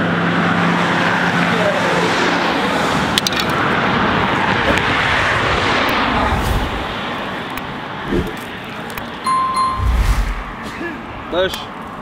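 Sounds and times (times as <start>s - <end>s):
traffic passing close by: 0.0s - 12.0s.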